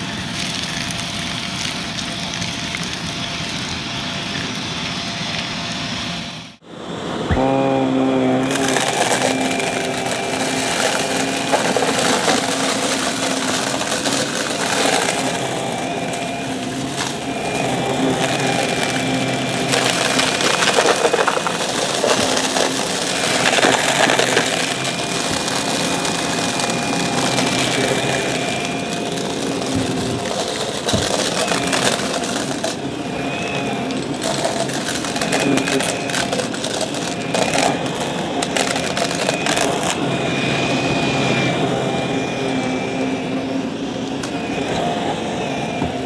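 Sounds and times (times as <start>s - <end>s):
vacuum cleaner motor whine: 0.0s - 46.0s
vacuum crunching debris: 7.2s - 42.5s.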